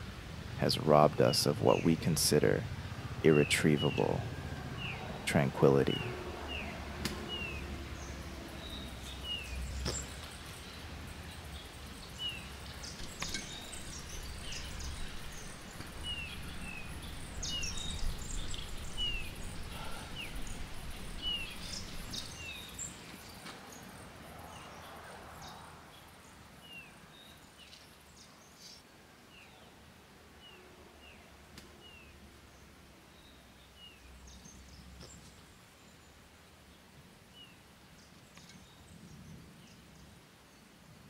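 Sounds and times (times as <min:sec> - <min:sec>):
small bird chirping: 0:05.9 - 0:24.0.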